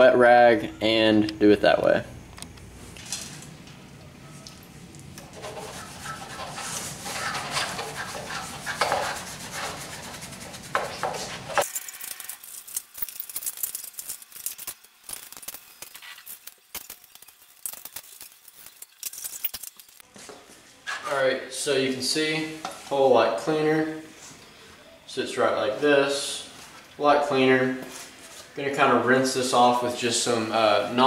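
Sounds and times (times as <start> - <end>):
low background hum: 0.0 - 31.0
wet rag scrubbing plastic: 5.2 - 11.6.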